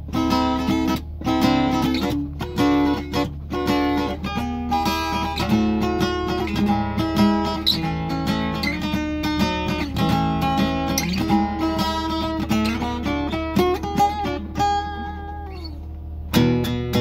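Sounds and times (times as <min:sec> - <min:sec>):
acoustic guitar picking: 0:00.0 - 0:17.0
steady low hum: 0:00.0 - 0:17.0.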